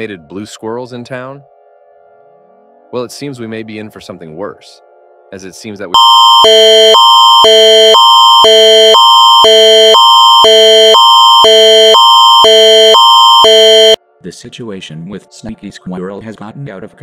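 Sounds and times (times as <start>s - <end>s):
alternating electronic alert tones: 6.0s - 14.0s.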